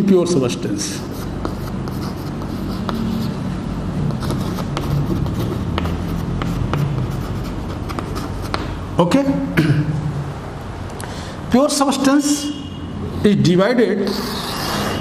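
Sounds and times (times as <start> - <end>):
chalk scratching on blackboard: 0.9 - 3.4, 4.0 - 8.7, 14.0 - 15.0.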